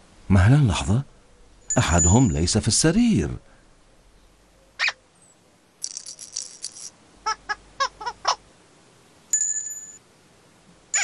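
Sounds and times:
high ringing tone: 1.6s - 2.4s, 9.3s - 10.0s
shaker-like rattle: 5.8s - 7.0s.

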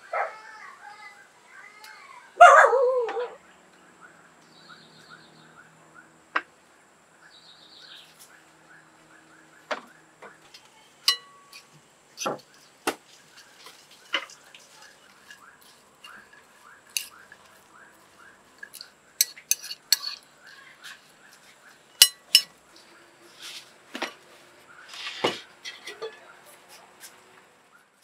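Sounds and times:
dog barking: 2.4s - 3.4s
faint chirping: 3.4s - 6.2s.

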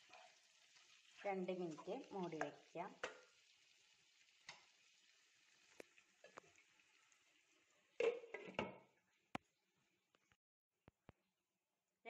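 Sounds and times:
chicken sizzling in a pan: 0.0s - 8.0s.

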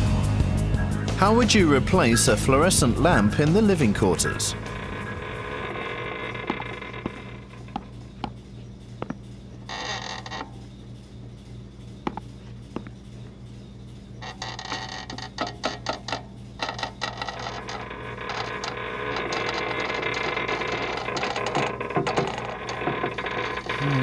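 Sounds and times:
low machinery hum: 0.0s - 24.0s
metal folding chair creaking: 2.6s - 8.4s, 9.0s - 10.8s, 14.2s - 24.0s.

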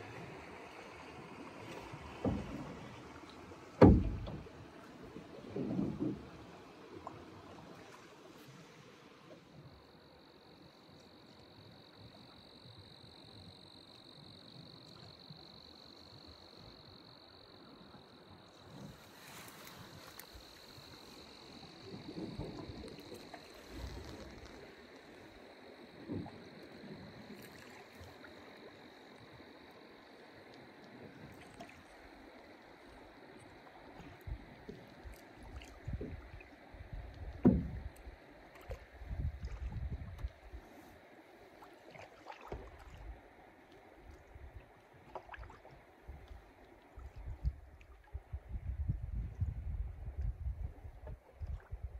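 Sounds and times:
water and air background noise: 0.0s - 51.9s
paddle thuds and splashes: 1.6s - 7.2s, 34.0s - 40.3s, 41.6s - 43.1s, 44.9s - 46.4s
sharp knock on hull: 3.8s - 4.4s, 37.4s - 37.8s
high-pitched insect trill: 9.6s - 37.2s.

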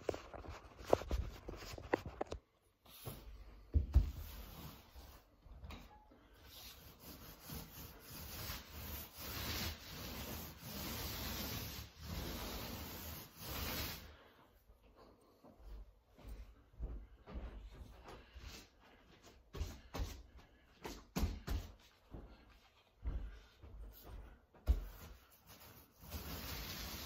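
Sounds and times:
paint roller rubbing hiss: 4.0s - 5.3s, 6.3s - 14.4s, 25.0s - 27.0s.

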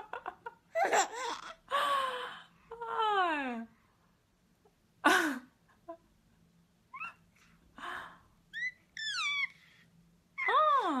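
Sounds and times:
baby squealing and cooing: 6.9s - 7.2s, 8.5s - 9.7s.

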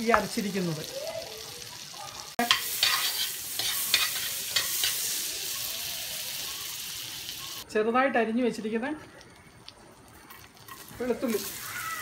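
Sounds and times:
fat sizzling and foaming in a pan: 0.0s - 7.7s, 9.0s - 12.0s
steel spoon scraping a pan: 2.4s - 5.7s, 10.2s - 11.7s.

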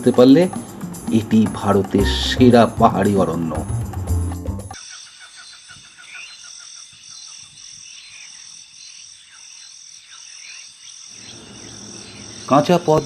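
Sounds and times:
insects shrill drone: 4.8s - 13.0s.

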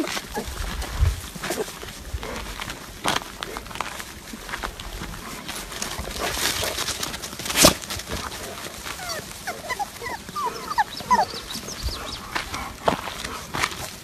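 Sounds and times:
puppies whimpering and squeaking: 8.9s - 12.8s.

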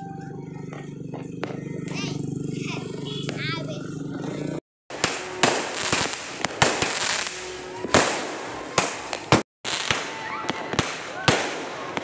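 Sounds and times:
fireworks bangs: 4.9s - 12.0s
fireworks crackling: 4.9s - 12.0s.

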